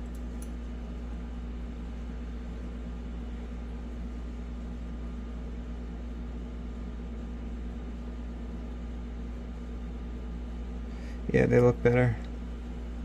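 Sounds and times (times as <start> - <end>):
low hum with hiss: 0.0 - 13.0.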